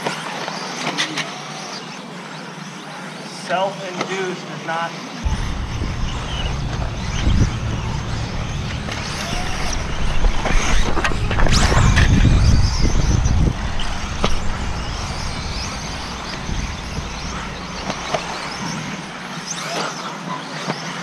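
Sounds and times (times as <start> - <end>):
radio-controlled cars running: 4.7 - 21.0
low rumble: 5.2 - 19.5.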